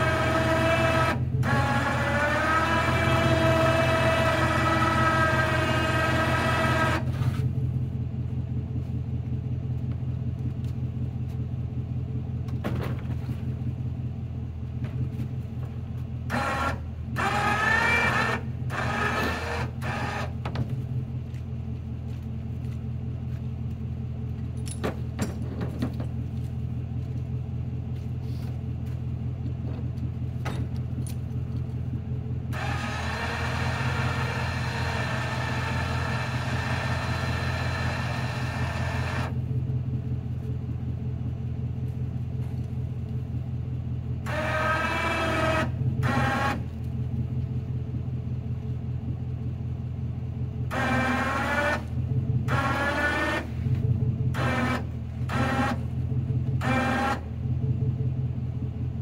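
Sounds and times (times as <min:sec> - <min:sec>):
winch motor whining: 0:00.0 - 0:07.5, 0:16.2 - 0:21.4, 0:32.5 - 0:39.6, 0:44.2 - 0:47.0, 0:50.6 - 0:57.5
truck engine idling: 0:00.0 - 0:59.0.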